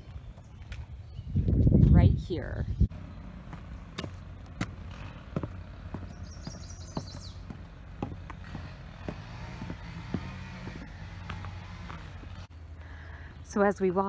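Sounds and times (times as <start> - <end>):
bird singing: 0.0 - 14.0
lawn mower humming: 2.9 - 12.7
footsteps on wooden steps: 3.0 - 12.5.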